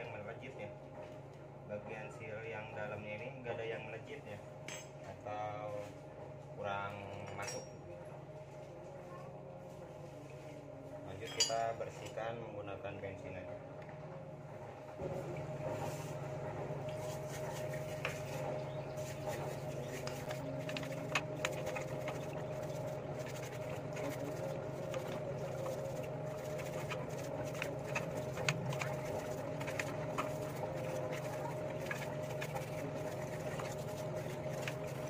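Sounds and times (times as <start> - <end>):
steady low hum: 0.0 - 35.0
scrubbing by hand: 15.6 - 35.0
drips: 16.8 - 35.0.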